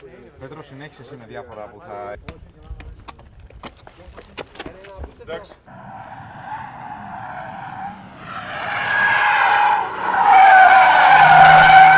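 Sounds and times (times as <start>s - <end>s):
car tyres squealing: 5.7s - 11.9s.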